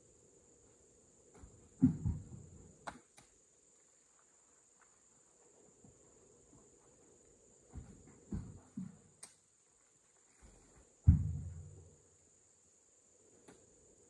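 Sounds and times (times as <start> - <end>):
dull thuds: 1.3 - 2.9, 7.7 - 9.1, 10.4 - 12.1.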